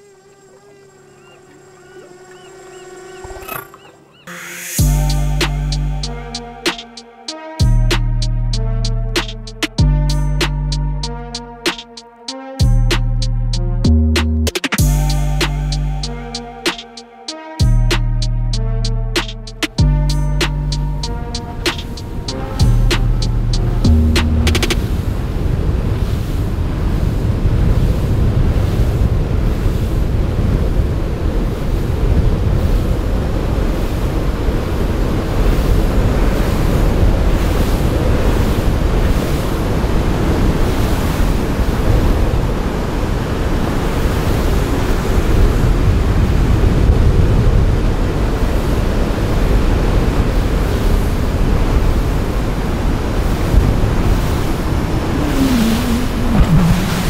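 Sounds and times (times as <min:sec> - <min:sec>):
waves washing: 0:19.2 - 0:57.0
wind buffeting microphone: 0:21.0 - 0:57.0.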